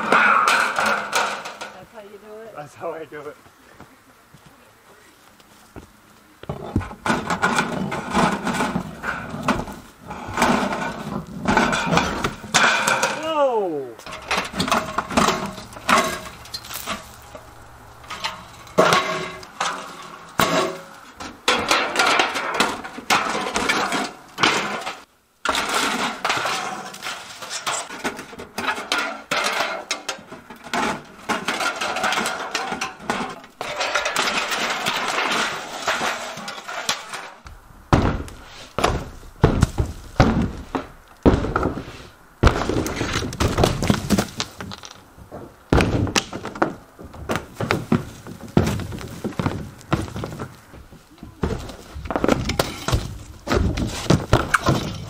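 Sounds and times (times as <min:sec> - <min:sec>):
siding clanking and clattering: 0:00.0 - 0:01.9, 0:06.4 - 0:13.2, 0:14.0 - 0:55.0
heavy thuds: 0:14.0 - 0:23.6, 0:33.0 - 0:55.0.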